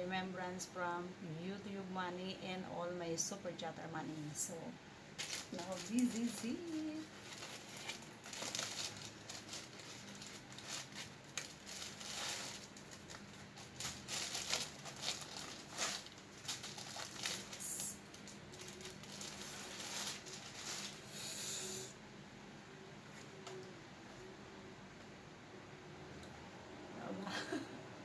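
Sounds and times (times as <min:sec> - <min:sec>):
plastic wrapping crinkling: 0:05.2 - 0:21.1.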